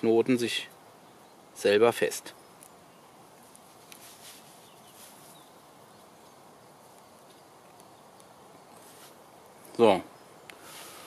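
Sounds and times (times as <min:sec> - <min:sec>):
quiet woodland ambience: 0:00.0 - 0:11.0
cord rustling and scraping: 0:03.4 - 0:05.5, 0:08.7 - 0:09.2.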